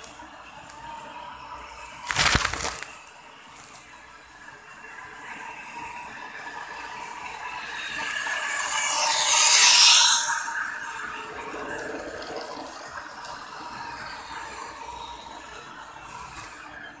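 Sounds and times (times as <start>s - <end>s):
wheels rattling on plastic track: 2.0s - 16.7s
toy train motor whirring: 5.4s - 12.4s.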